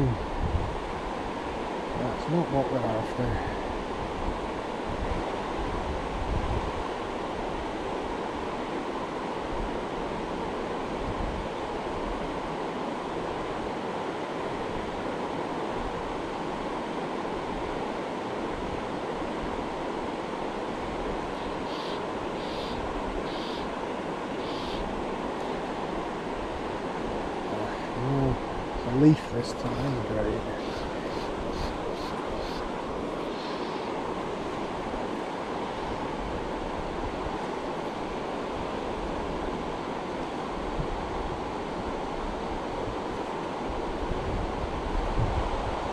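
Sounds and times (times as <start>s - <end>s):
river water rushing: 0.0s - 45.9s.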